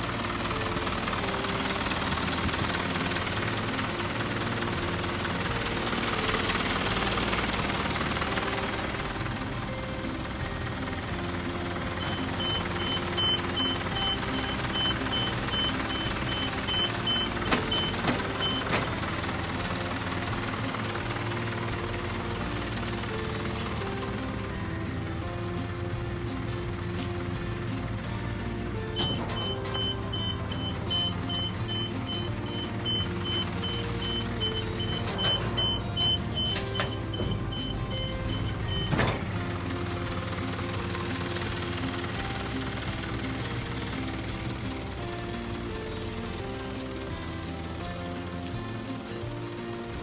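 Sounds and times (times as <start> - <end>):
truck engine idling: 0.0 - 50.0
truck warning beeper: 11.9 - 19.2, 28.9 - 39.4.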